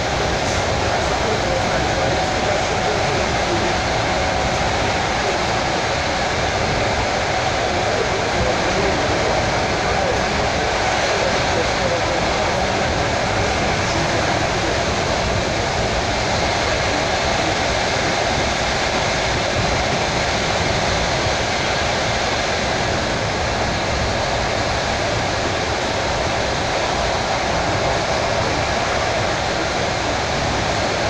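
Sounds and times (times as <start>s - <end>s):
electric train rumbling at speed: 0.0s - 31.0s.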